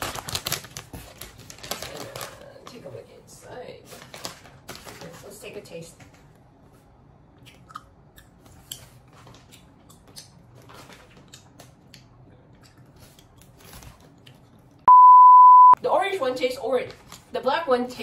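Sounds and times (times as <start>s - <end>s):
plastic bag crinkling: 0.0s - 2.6s, 3.9s - 5.4s
loud high beep: 14.9s - 15.8s.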